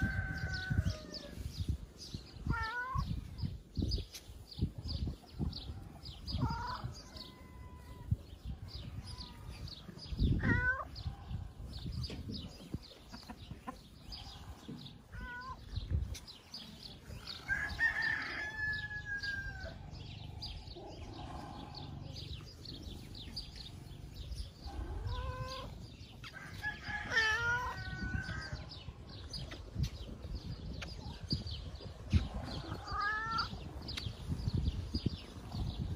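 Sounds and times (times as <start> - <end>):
roosters crowing: 0.0 - 1.6, 17.1 - 23.2, 23.8 - 29.1, 32.3 - 33.6
hens clucking: 11.3 - 17.2.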